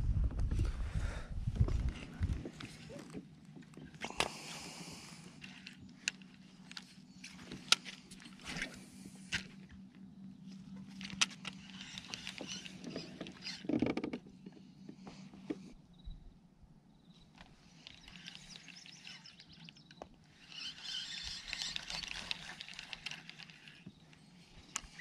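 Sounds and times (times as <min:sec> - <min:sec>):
steady low hum: 0:00.0 - 0:13.6
clicks and knocks on a kayak: 0:10.7 - 0:15.7.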